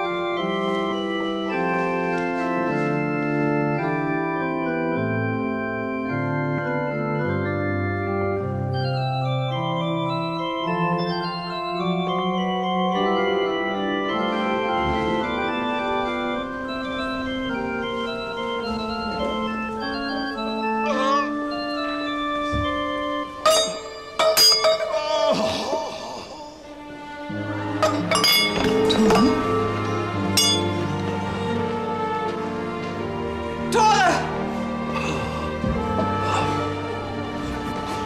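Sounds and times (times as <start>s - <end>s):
organ playing slow chords: 0.0s - 25.1s, 25.9s - 38.0s
metal dish clattering on stone: 27.8s - 29.4s.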